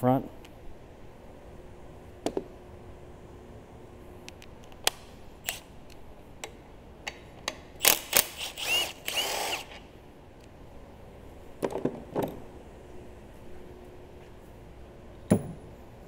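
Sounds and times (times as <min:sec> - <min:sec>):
power tool motor whine: 0:07.9 - 0:09.8.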